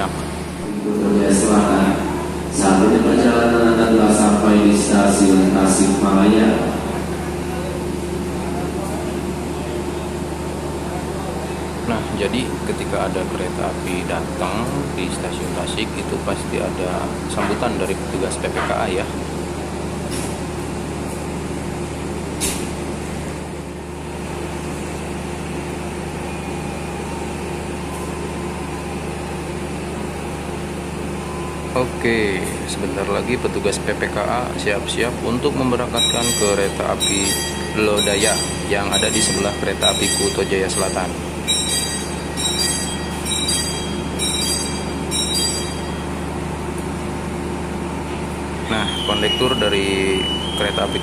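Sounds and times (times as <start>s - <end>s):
diesel train idling hum: 0.0s - 51.0s
short high chirp: 48.7s - 51.0s.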